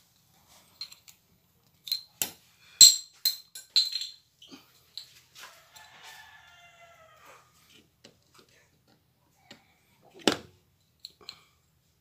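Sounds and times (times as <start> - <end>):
small hard parts clinking: 0.6 - 6.0.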